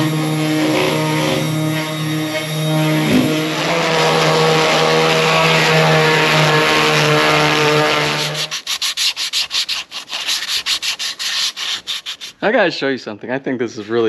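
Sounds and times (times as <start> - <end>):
electric router running: 0.0 - 8.6
hand sanding wood: 0.0 - 12.6.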